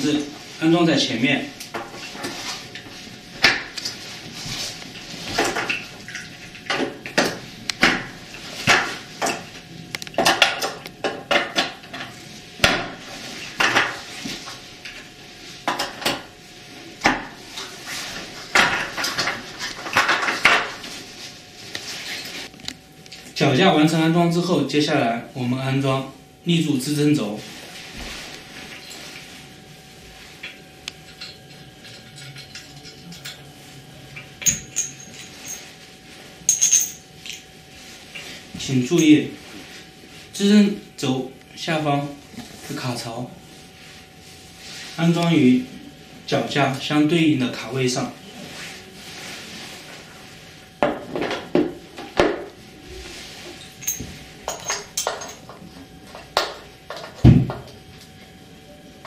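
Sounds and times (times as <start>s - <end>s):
metallic clinks: 36.5s - 37.4s.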